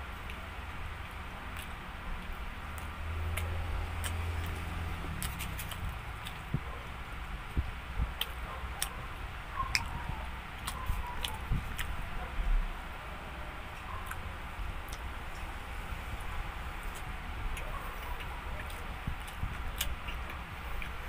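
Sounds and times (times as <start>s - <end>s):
steady low hum: 0.0s - 21.0s
chewing and biting mouth sounds: 0.1s - 12.8s, 13.6s - 21.0s.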